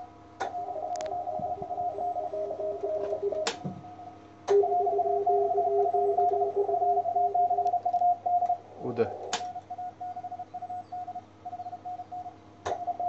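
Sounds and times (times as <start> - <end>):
faint hum: 0.0 - 13.0
morse code beeps: 0.6 - 13.0
sharp clicks: 3.4 - 3.6, 9.2 - 9.7.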